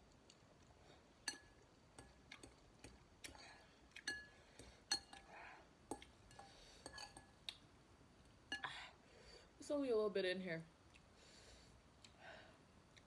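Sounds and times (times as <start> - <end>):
soft chewing: 0.0 - 8.8, 10.8 - 12.2
fork clinking against glass bowl: 1.3 - 2.6, 4.0 - 4.3, 4.9 - 5.3, 5.9 - 7.3.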